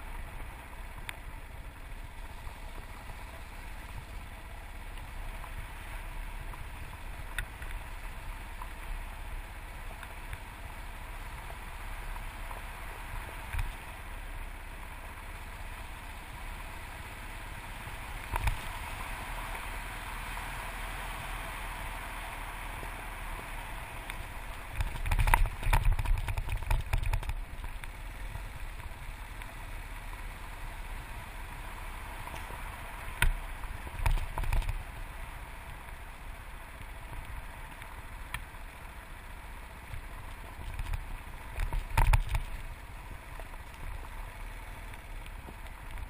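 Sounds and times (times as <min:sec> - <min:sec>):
knocks and thumps over rough ground: 0:09.8 - 0:14.0, 0:18.2 - 0:18.9, 0:24.0 - 0:28.0, 0:32.2 - 0:36.0, 0:39.8 - 0:46.0
wind noise: 0:24.7 - 0:27.5.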